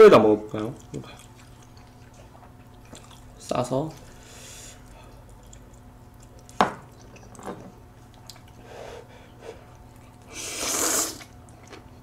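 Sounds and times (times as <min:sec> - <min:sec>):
person slurping noodles: 0:10.3 - 0:11.3.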